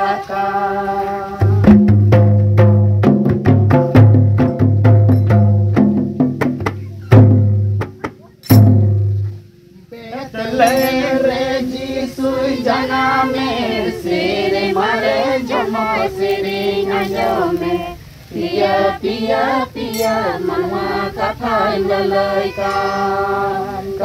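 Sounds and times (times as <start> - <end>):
women singing together: 0.0 - 1.7, 9.8 - 24.0
hand drums: 1.4 - 9.5, 19.9 - 20.4.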